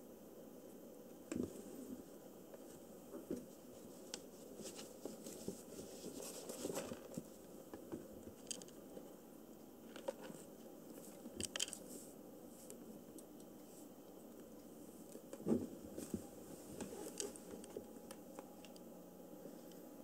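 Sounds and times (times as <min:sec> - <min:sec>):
kitten rustling on paper: 0:03.5 - 0:07.4.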